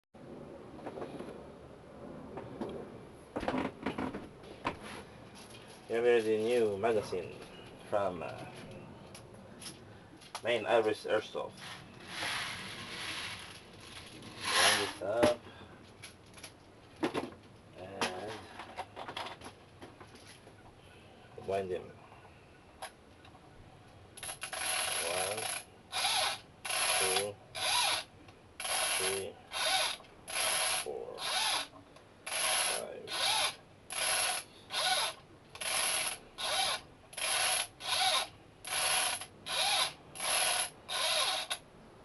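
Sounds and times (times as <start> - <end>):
ratchet clicking rapidly: 24.2 - 31.7, 32.3 - 41.6.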